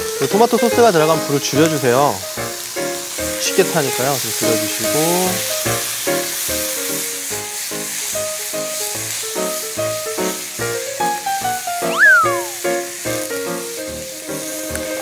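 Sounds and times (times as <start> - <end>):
sauce sizzling in frying pan: 0.0 - 15.0.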